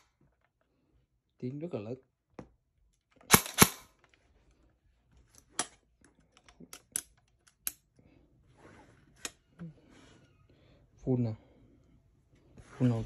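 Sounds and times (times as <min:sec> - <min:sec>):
airsoft gun shots: 0:03.3 - 0:03.8.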